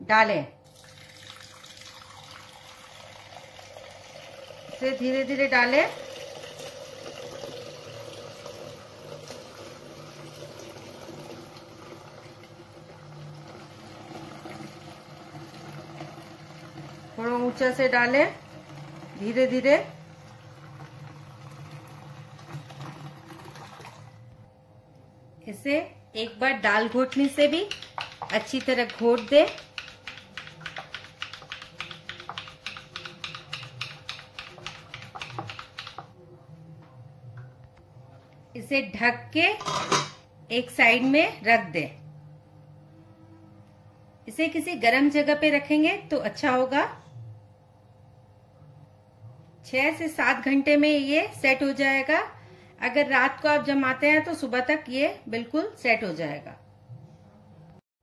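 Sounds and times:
milk pouring into clay pot: 0.6s - 5.0s, 5.9s - 19.3s, 20.0s - 24.2s
wooden churner clicking in pot: 26.9s - 36.1s.

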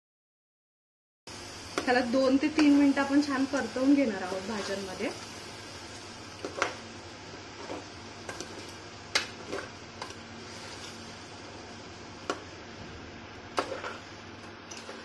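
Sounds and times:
metal spatula scraping a pot: 13.6s - 14.0s.

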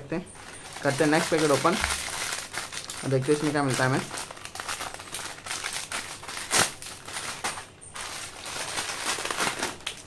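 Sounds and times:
foil packet crinkling: 0.4s - 10.0s
scissors cutting foil: 0.8s - 10.0s.

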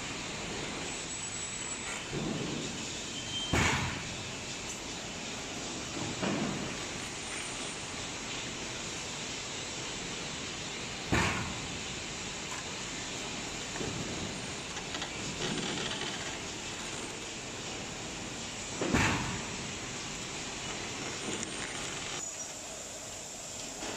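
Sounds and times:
roller conveyor mechanical hum: 0.0s - 23.9s
sharp clunk: 3.5s - 4.1s, 11.1s - 11.6s, 18.8s - 19.4s.

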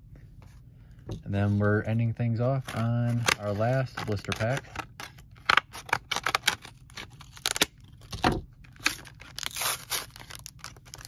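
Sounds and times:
wrapper tearing: 2.6s - 11.0s
wrapper crackling: 2.7s - 11.0s.

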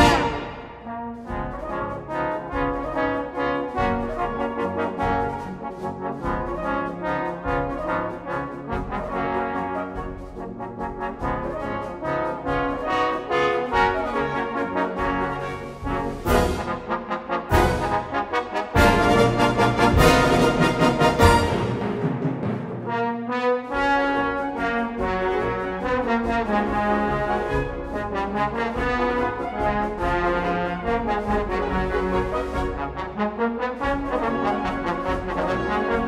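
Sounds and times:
trombone melody: 0.0s - 22.2s, 22.8s - 36.0s.

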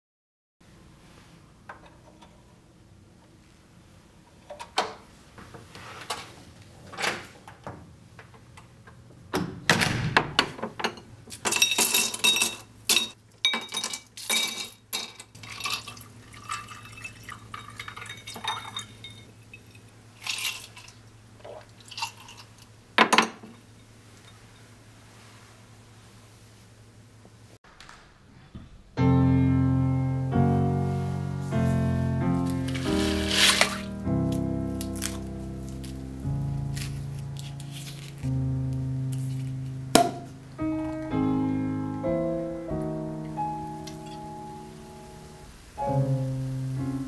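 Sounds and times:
ice cubes clinking into glasses: 11.4s - 21.0s
liquor pouring: 15.4s - 22.7s.

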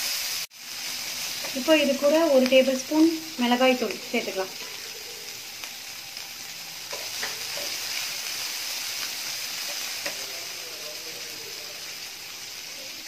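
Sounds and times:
food sizzling in oil: 0.0s - 13.0s.

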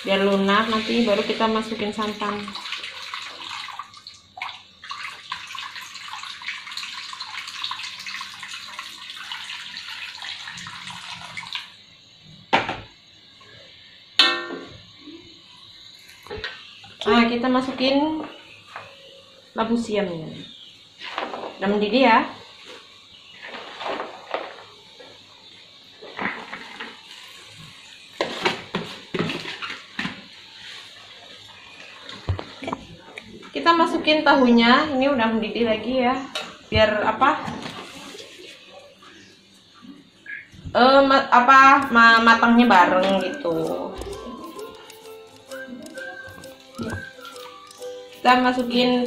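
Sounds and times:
water pouring into a wok: 0.0s - 11.8s.

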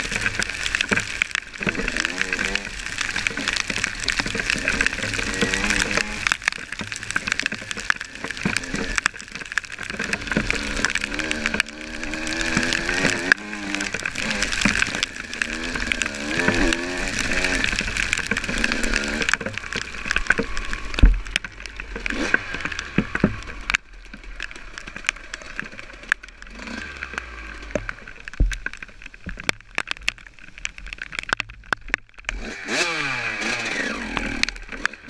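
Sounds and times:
wind and tyre noise: 0.0s - 35.0s
dirt bike engine revving: 4.7s - 6.2s, 10.2s - 17.8s, 26.5s - 27.7s, 32.3s - 35.0s.

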